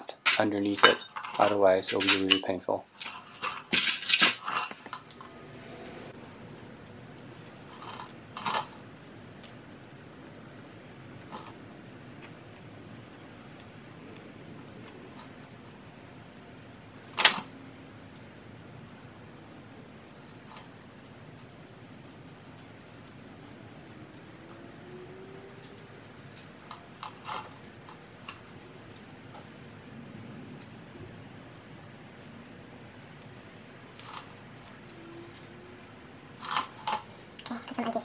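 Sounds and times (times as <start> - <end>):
gloved hands rubbing metal: 20.0 - 36.0.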